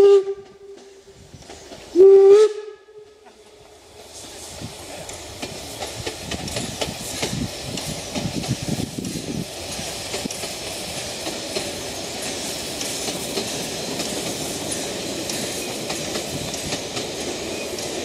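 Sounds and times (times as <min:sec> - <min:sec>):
steam whistle blasts: 0:00.0 - 0:01.0, 0:01.9 - 0:03.3
steam train running: 0:00.0 - 0:18.0.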